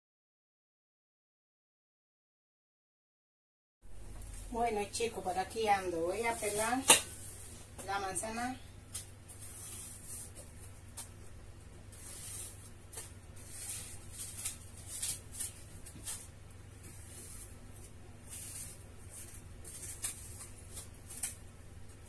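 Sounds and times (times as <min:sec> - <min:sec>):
knife peeling apple: 0:08.7 - 0:22.0.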